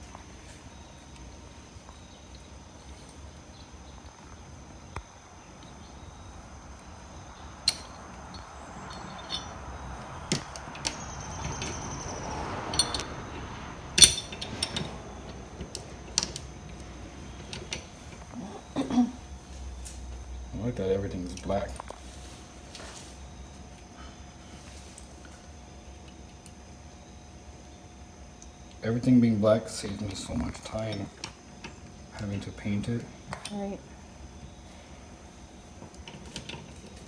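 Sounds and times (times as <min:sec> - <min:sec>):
metal parts clinking: 0:07.6 - 0:09.6, 0:12.7 - 0:13.2, 0:13.9 - 0:15.1.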